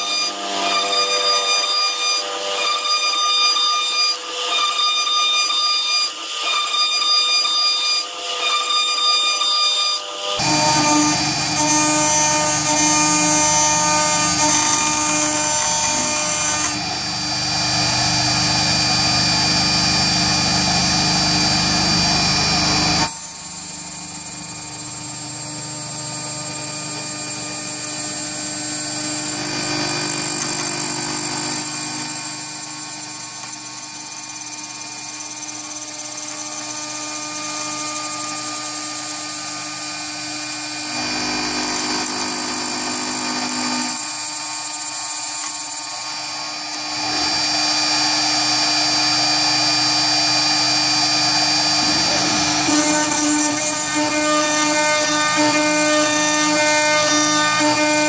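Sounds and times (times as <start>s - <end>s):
endmill cutting metal: 0.0s - 58.0s
router spindle high whine: 0.0s - 58.0s.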